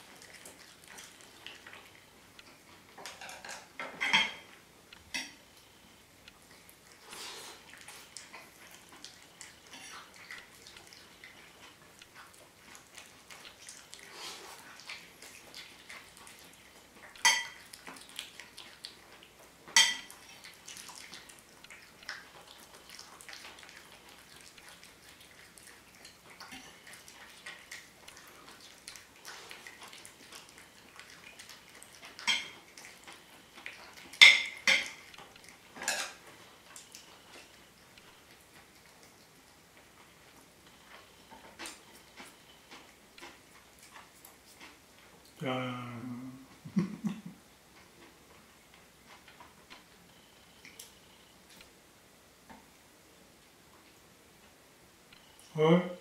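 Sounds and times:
cat eating from metal bowl: 0.0s - 5.4s
fork clinking and scraping on plate: 35.8s - 36.2s.

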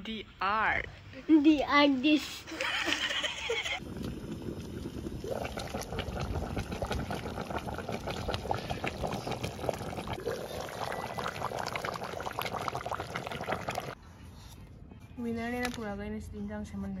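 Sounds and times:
stew bubbling in a pot: 3.8s - 14.0s.

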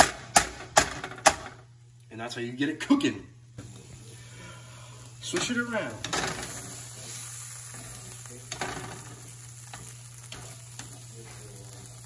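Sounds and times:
tomato sizzling in a pan: 3.6s - 12.0s.

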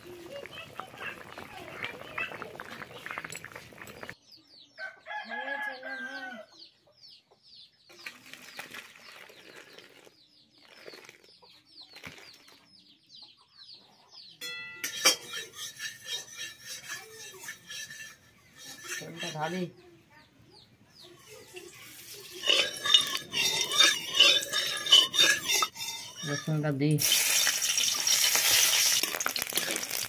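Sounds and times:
small birds chirping: 0.0s - 14.9s, 16.1s - 28.9s
rooster crowing: 4.8s - 6.5s
metallic clatter of cookware: 14.4s - 19.7s, 21.2s - 30.0s.

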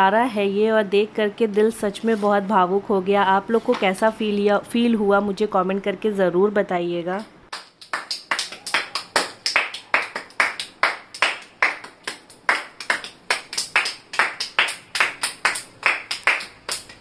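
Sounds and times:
hands clapping: 7.5s - 17.0s.

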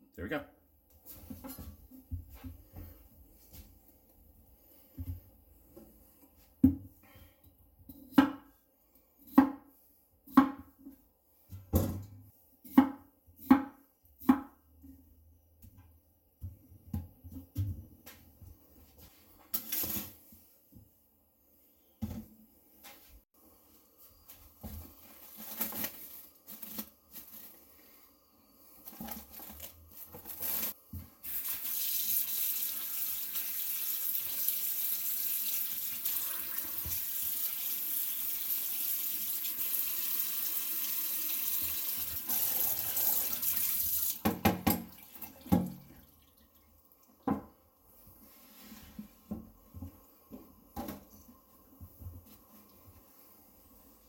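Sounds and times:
water running from tap: 31.2s - 47.0s.

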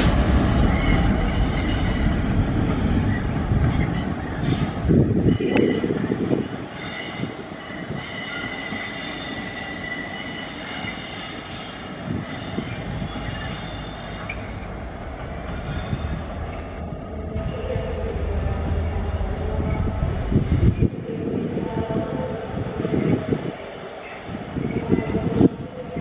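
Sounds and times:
diesel locomotive engine rumbling: 0.0s - 26.0s
train wheels squealing: 0.6s - 14.6s.

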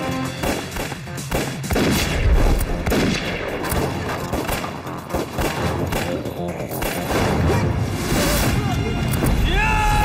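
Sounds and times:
film score music: 0.0s - 10.0s
gunfire: 0.4s - 7.7s.

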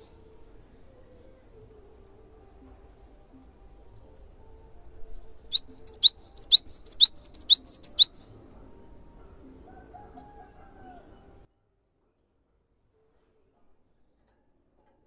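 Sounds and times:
bird singing high-pitched song: 0.0s - 9.3s.

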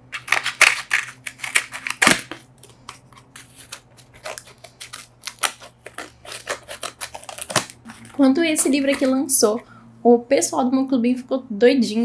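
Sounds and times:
packaging crinkling and rustling: 0.0s - 9.6s.

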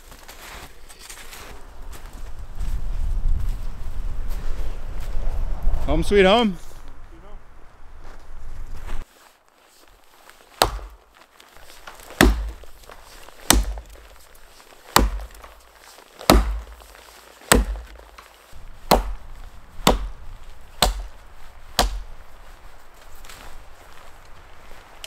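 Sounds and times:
axe chopping wood: 10.6s - 11.0s, 11.6s - 14.2s, 14.9s - 22.2s.

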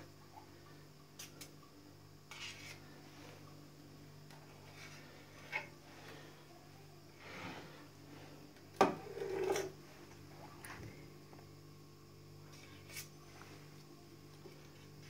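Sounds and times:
knife scraping cream: 2.3s - 3.0s.

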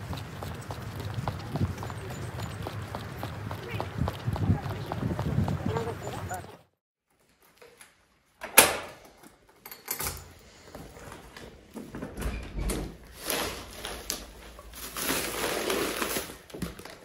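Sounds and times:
door opening and shutting: 8.4s - 9.0s, 11.9s - 13.0s
rustling: 13.0s - 17.0s.

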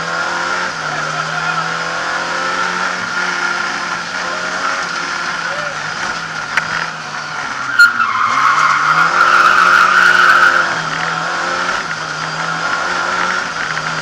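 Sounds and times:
car engine running hard: 0.0s - 14.0s
tyres squealing: 4.2s - 10.9s.

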